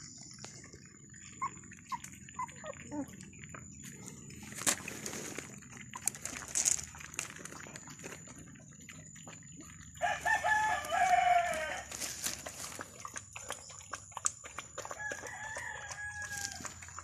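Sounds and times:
puppies eating from a plate: 0.0s - 17.0s
rooster crowing: 10.0s - 11.9s, 15.0s - 16.7s.

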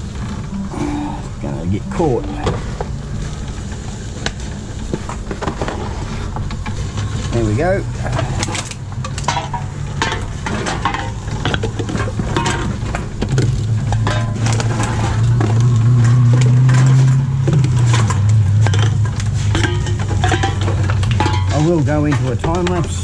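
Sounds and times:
drink containers clattering: 4.6s - 23.0s.

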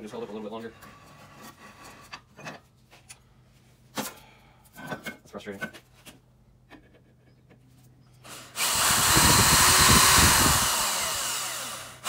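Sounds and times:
power drill boring into steel: 8.2s - 12.0s.

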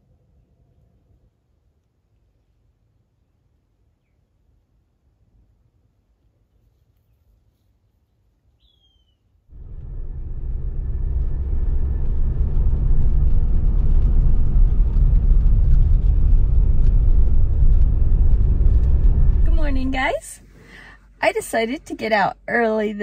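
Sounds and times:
bird chirp: 8.6s - 9.3s
car engine rumble and road noise: 9.5s - 23.0s.

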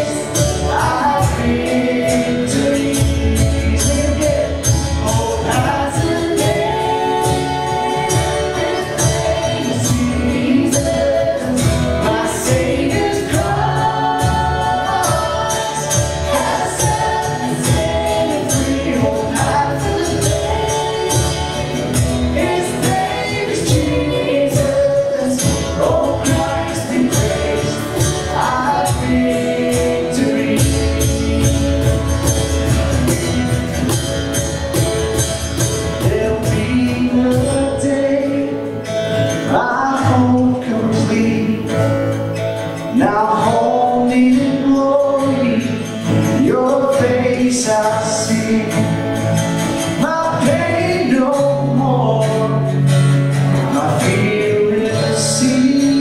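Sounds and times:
steady percussion beat: 0.0s - 37.9s
people singing: 0.0s - 56.0s
worship band playing: 0.0s - 56.0s.

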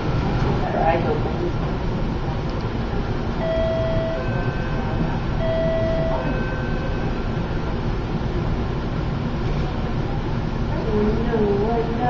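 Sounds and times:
steady rumbling noise: 0.0s - 12.0s
two-note electronic alarm chime: 3.4s - 7.3s.

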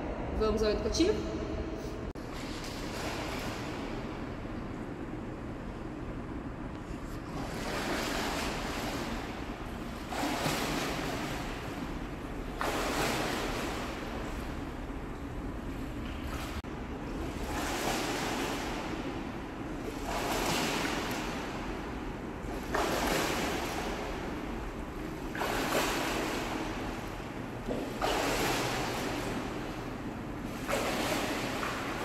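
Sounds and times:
swimmer splashing water: 2.2s - 5.8s, 7.0s - 32.0s.

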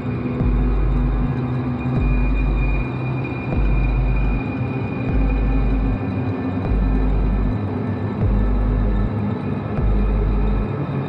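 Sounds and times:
deep bass pulse: 0.4s - 1.4s, 2.0s - 2.9s, 3.5s - 4.4s, 5.1s - 6.0s, 6.6s - 7.6s, 8.2s - 9.1s, 9.8s - 10.7s.

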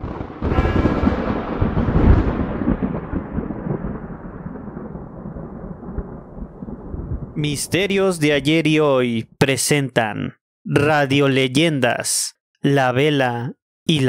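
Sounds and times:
thunder rumbling: 0.0s - 9.0s.

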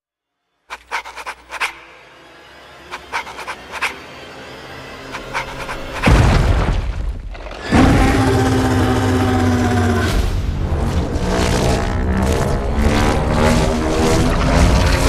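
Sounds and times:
low drone: 0.7s - 6.1s
monster roaring: 7.6s - 10.3s.

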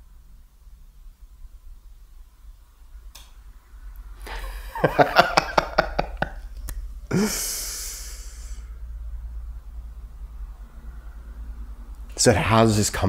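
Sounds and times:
man laughing: 4.3s - 6.4s, 7.1s - 7.9s
breathy sighing exhale: 7.1s - 8.8s.

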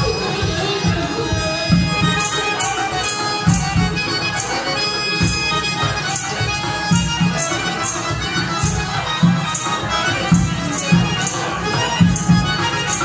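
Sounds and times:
button accordion: 0.0s - 13.0s.

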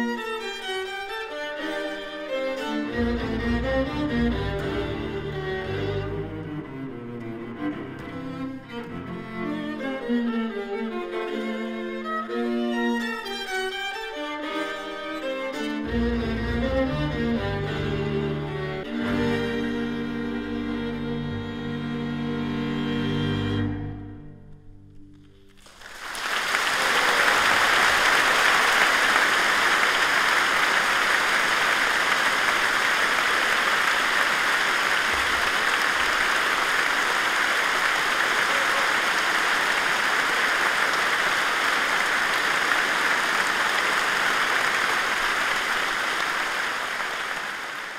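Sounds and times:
audience applauding: 25.4s - 47.9s.

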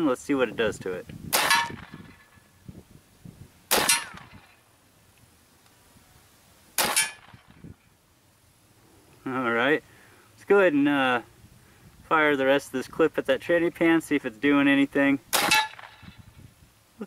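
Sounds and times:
air rifle shots: 1.3s - 2.3s, 3.7s - 4.6s, 6.8s - 7.6s, 15.3s - 16.2s
bullet clanging on metal: 6.8s - 7.4s.

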